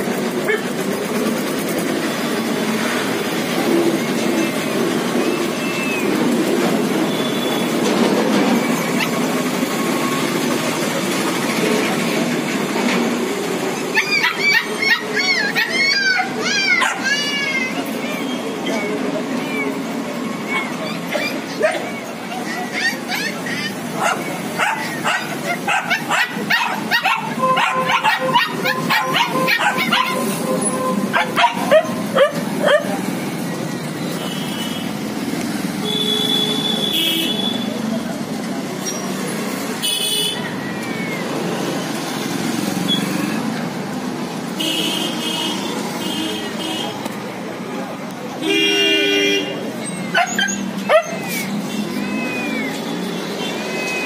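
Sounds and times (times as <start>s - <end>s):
loud background din: 0.0s - 54.0s
steady background noise: 0.0s - 54.0s
dogs barking and yipping: 0.2s - 2.0s, 3.4s - 10.4s, 13.4s - 34.1s, 49.7s - 54.0s.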